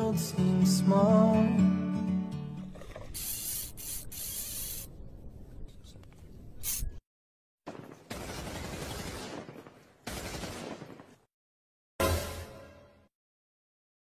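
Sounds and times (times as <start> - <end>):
bursts of hissing noise: 3.2 - 4.9.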